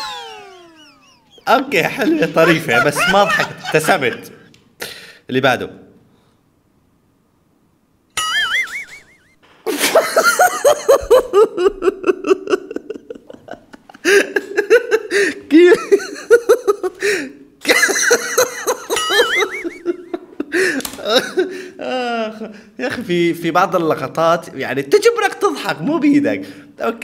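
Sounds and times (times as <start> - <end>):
man laughing hard: 0.0 - 4.5, 9.7 - 22.5.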